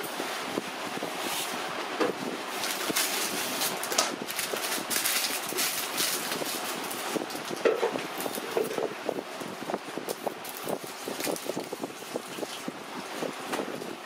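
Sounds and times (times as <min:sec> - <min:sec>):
piping bag crinkling: 0:02.5 - 0:09.0, 0:09.9 - 0:13.5.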